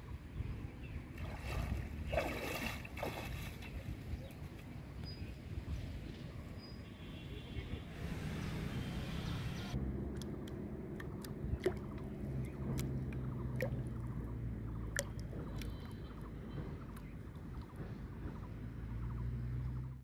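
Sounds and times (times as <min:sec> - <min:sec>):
small water plops: 0:01.2 - 0:03.8, 0:10.1 - 0:18.5
low motor drone: 0:08.0 - 0:19.9.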